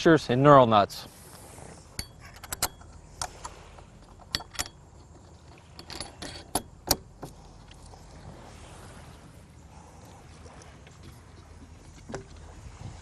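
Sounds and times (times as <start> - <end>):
metal washers and nuts clinking: 2.0 - 3.4, 4.0 - 6.8.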